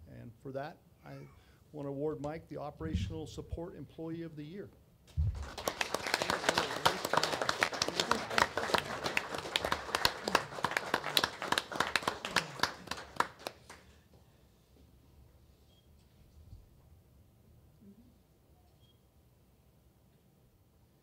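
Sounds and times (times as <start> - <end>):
audience applauding: 5.3 - 13.9.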